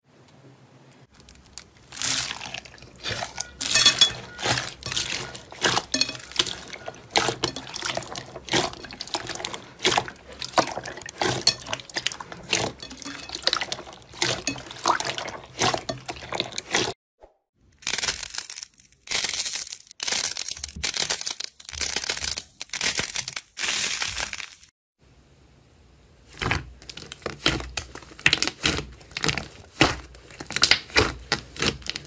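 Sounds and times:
hands squishing slime: 1.2s - 16.9s, 26.3s - 32.0s
crackly pops of foam beads: 26.4s - 32.0s.

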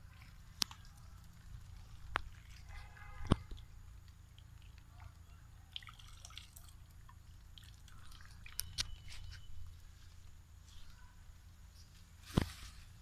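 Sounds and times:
faint clicks and ticks: 0.0s - 5.3s.

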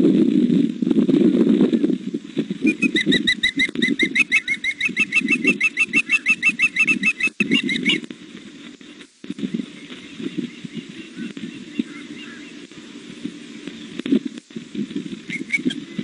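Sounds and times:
osprey chirping: 2.6s - 8.1s, 9.6s - 12.7s, 15.3s - 16.0s
wings flapping: 2.6s - 8.1s, 15.2s - 16.0s.

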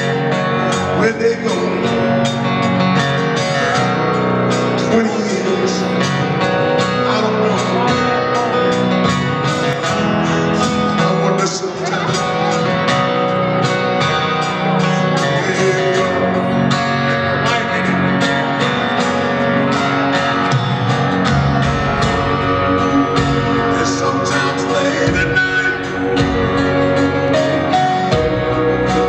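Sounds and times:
acoustic guitar strumming: 0.0s - 29.0s
bass guitar: 0.0s - 29.0s
drums beat: 18.6s - 29.0s.

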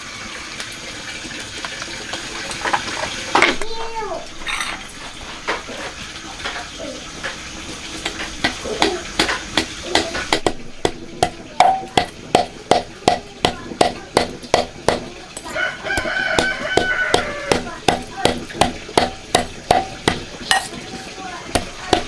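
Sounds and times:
knife chopping: 8.0s - 20.8s
rooster crowing: 15.4s - 17.5s.

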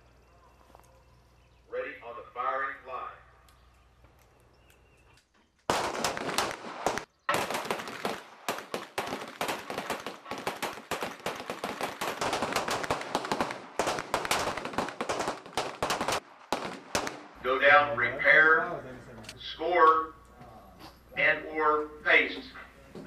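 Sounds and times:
pistol shots: 5.7s - 17.6s.

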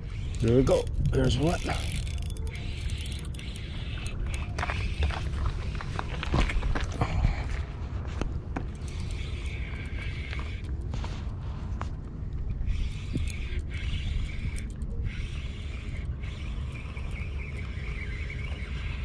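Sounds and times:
fishing reel cranking: 0.0s - 6.0s, 8.7s - 10.9s, 12.5s - 19.0s
sharp reel clicks: 0.0s - 6.2s, 12.5s - 19.0s
wind rumble on microphone: 0.0s - 19.0s.

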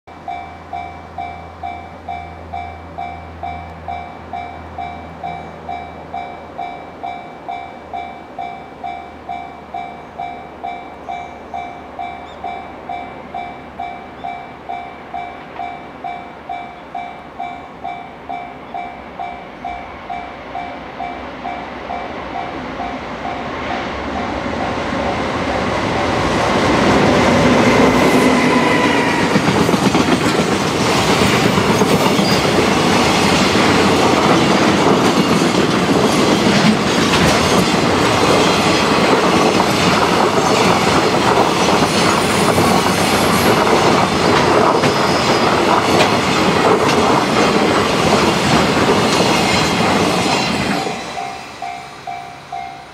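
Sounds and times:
electric locomotive whine: 0.1s - 52.9s
train wheels clickety-clack: 18.8s - 52.8s.

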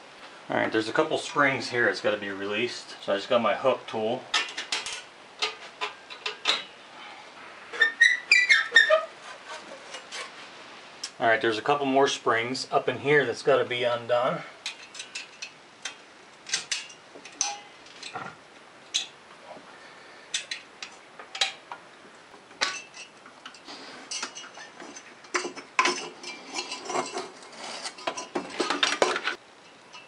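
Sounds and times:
metal pipe rattling and scraping: 8.8s - 10.4s, 14.6s - 18.3s, 22.6s - 30.0s.

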